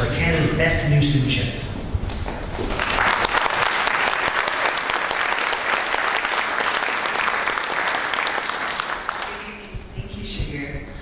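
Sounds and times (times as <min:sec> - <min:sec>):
audience applauding: 0:02.6 - 0:09.7.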